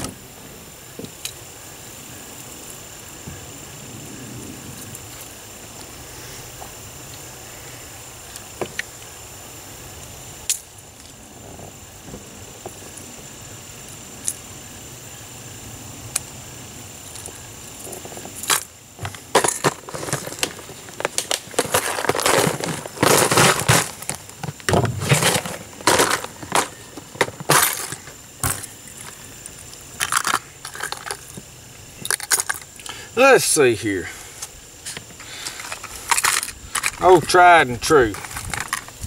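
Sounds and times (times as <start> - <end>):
lures rattling in tackle box: 18.5 - 28.7, 35.2 - 39.0.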